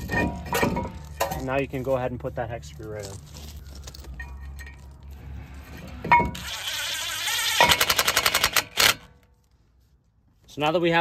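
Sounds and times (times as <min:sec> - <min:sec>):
metal clank: 0:00.0 - 0:01.6, 0:05.7 - 0:06.5
metal handling: 0:00.0 - 0:02.0, 0:02.8 - 0:06.4
impact driver whining: 0:06.0 - 0:09.1.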